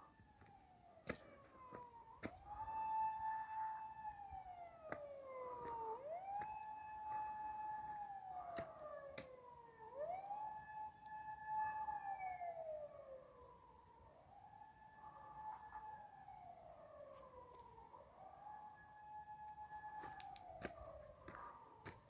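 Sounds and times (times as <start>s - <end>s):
emergency siren wailing: 0.0s - 22.0s.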